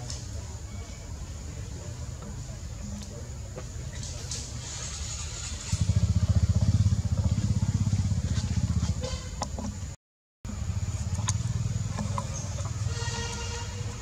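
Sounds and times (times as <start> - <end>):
engine running: 3.5 - 14.0.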